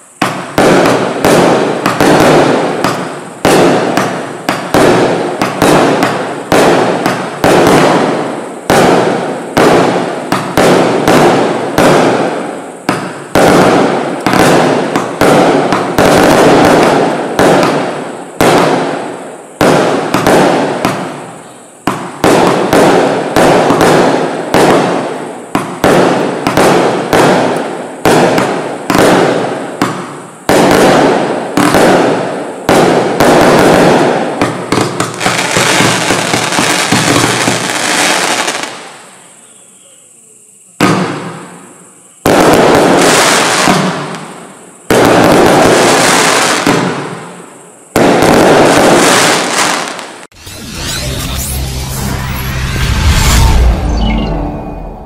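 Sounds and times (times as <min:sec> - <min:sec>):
firework launches and bursts: 0:00.0 - 0:39.1.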